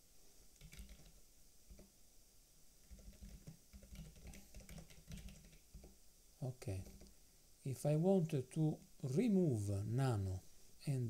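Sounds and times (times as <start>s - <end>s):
faint keyboard typing: 0.6s - 1.9s, 2.8s - 6.0s, 6.6s - 7.2s.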